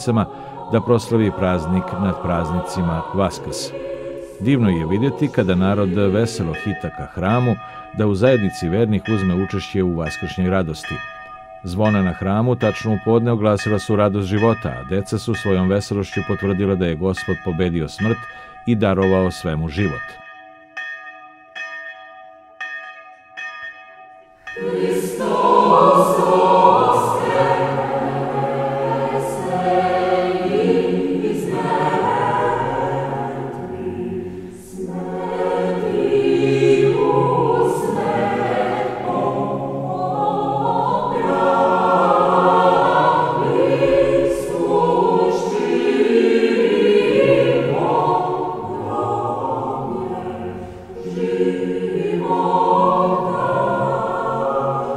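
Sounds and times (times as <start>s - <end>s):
choir singing a hymn: 0.0s - 7.6s, 24.6s - 54.9s
church bells ringing: 0.0s - 54.9s.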